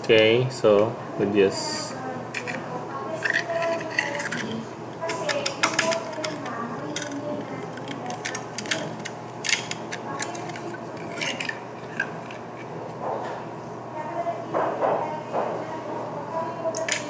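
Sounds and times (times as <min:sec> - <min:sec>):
plastic parts rubbing and clicking: 0:03.2 - 0:12.7.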